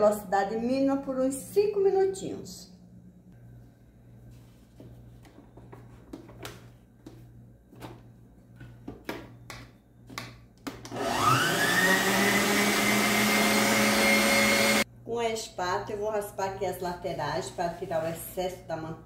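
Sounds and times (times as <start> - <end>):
stand mixer motor running: 10.9 - 14.8.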